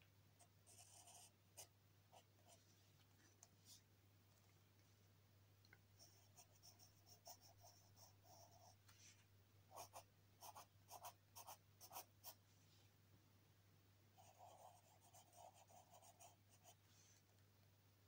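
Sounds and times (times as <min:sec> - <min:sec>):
pencil scratching on paper: 0:00.7 - 0:01.7, 0:06.0 - 0:08.8, 0:09.7 - 0:12.4, 0:14.2 - 0:16.8.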